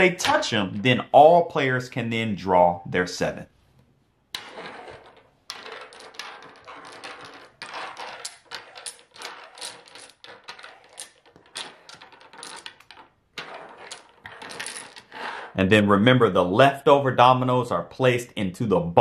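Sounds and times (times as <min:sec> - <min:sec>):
dominoes clacking: 0:04.4 - 0:15.2
dominoes sliding on wooden table: 0:04.4 - 0:15.6.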